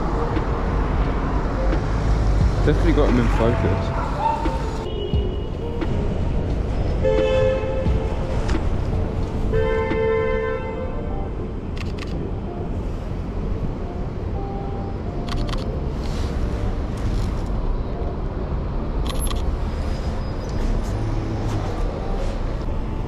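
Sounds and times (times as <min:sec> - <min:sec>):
city street traffic rumble: 0:00.0 - 0:23.0
vehicle horn: 0:03.2 - 0:05.6, 0:07.0 - 0:08.2, 0:09.5 - 0:11.0.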